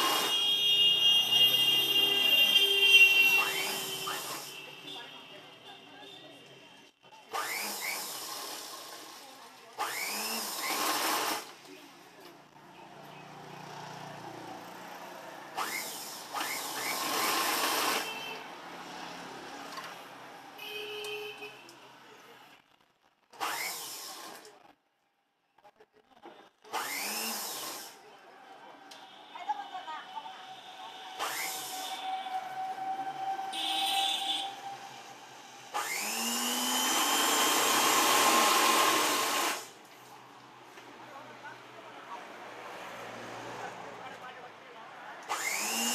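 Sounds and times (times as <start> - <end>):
sewing machine motor whining: 0.0 - 0.6, 3.1 - 4.6, 7.3 - 11.5, 15.6 - 18.2, 23.4 - 24.5, 26.7 - 28.0, 30.4 - 39.7, 45.2 - 45.9.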